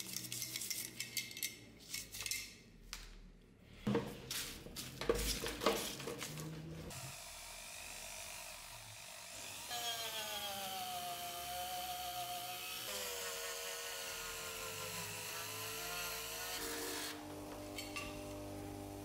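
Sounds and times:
rotary tool grinding metal: 0:06.9 - 0:18.4.

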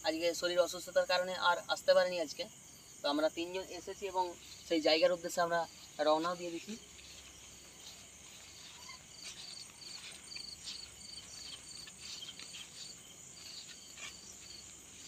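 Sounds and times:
crickets chirping: 0:00.0 - 0:15.0
faint footsteps on dirt path: 0:04.0 - 0:15.0
rustling: 0:05.7 - 0:15.0.

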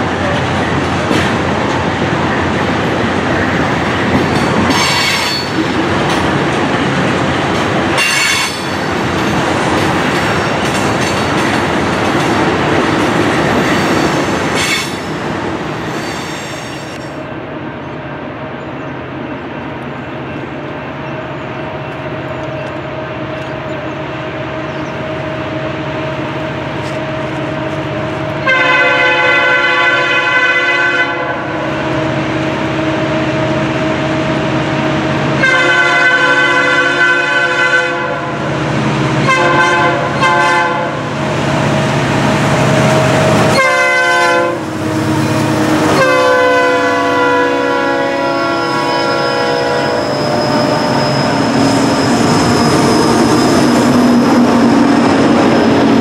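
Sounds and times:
diesel locomotive drone: 0:00.0 - 0:56.0
train wheel squeals: 0:04.2 - 0:05.6, 0:15.9 - 0:17.2, 0:48.6 - 0:56.0
locomotive air horn chord: 0:28.4 - 0:31.4, 0:35.4 - 0:38.3, 0:39.2 - 0:41.0, 0:43.5 - 0:52.0.

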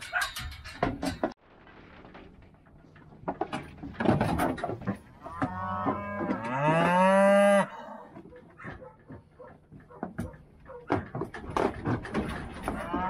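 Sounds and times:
clattering knocks: 0:00.0 - 0:07.0, 0:08.2 - 0:13.0
cow mooing: 0:05.2 - 0:08.1.

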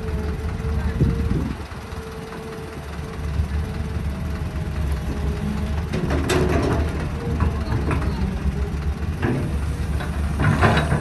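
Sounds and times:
engine whine: 0:00.0 - 0:11.0
excavator diesel engine running: 0:00.0 - 0:11.0
metal clanks and scrapes: 0:05.9 - 0:08.2, 0:09.2 - 0:11.0.

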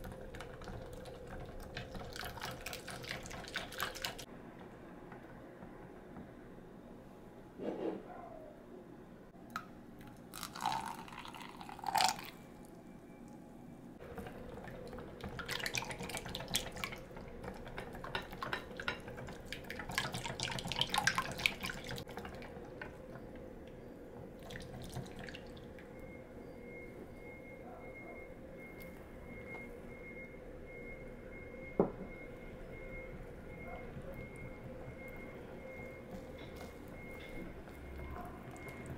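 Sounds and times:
milk pouring into batter: 0:10.0 - 0:12.4.

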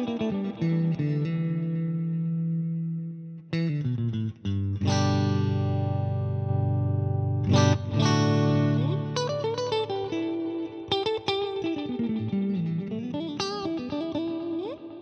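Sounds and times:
electric guitar lead with bends: 0:00.0 - 0:15.0
clean electric guitar chord: 0:04.8 - 0:15.0.

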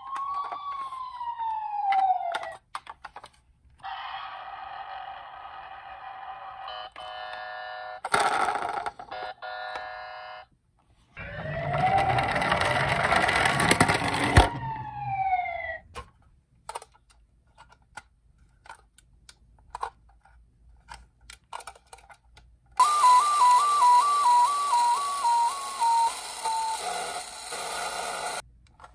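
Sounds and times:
electronic toy siren wail: 0:00.0 - 0:02.6, 0:11.2 - 0:15.9, 0:22.8 - 0:28.4
two-tone toy siren: 0:00.0 - 0:02.6, 0:03.8 - 0:08.0, 0:09.1 - 0:10.5, 0:11.2 - 0:15.8, 0:22.8 - 0:28.4.

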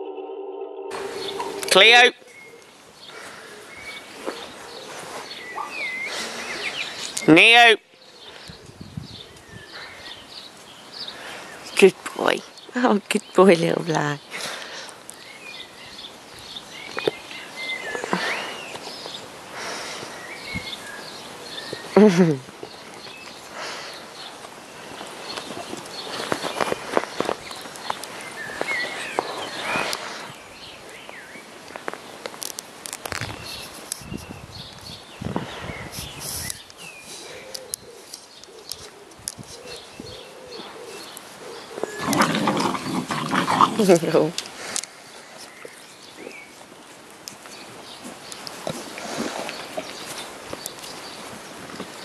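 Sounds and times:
dove cooing: 0:00.0 - 0:01.9, 0:37.2 - 0:44.0
high whistling calls: 0:00.0 - 0:02.6
faint bird chirps: 0:00.0 - 0:02.7, 0:03.4 - 0:07.3.

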